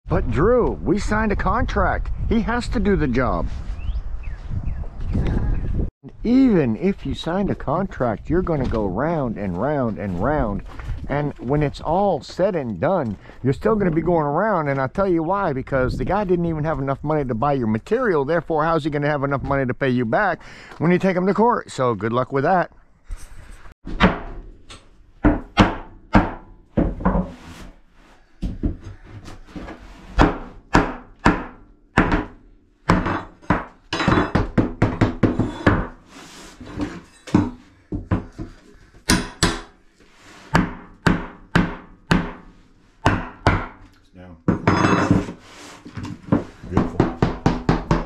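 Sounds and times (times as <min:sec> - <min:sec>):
hammer blows on plywood: 0:46.3 - 0:48.0.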